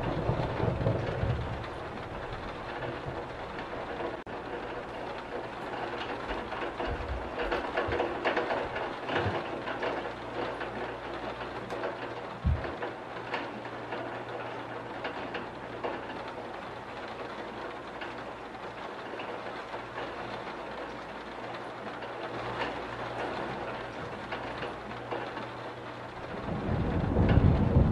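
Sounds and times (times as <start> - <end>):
steady rain: 0.0 - 27.9
low thump: 12.4 - 12.7.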